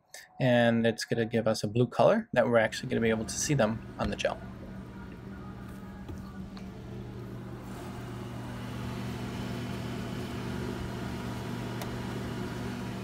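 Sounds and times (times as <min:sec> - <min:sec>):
incubator motor hum: 0:02.7 - 0:13.0.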